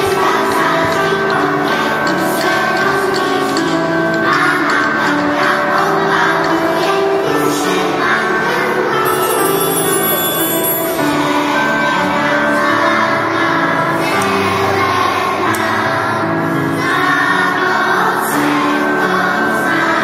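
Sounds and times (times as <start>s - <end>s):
children singing: 0.0s - 20.0s
musical accompaniment: 0.0s - 20.0s.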